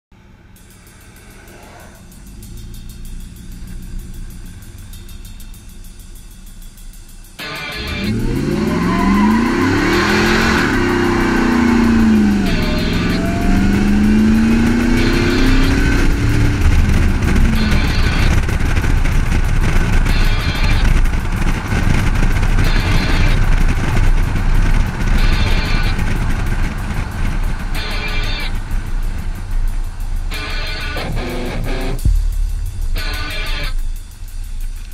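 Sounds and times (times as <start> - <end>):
pickup engine accelerating hard: 0.2 - 34.9
road and wind rumble: 0.2 - 34.9
music with regular beat: 0.4 - 34.9.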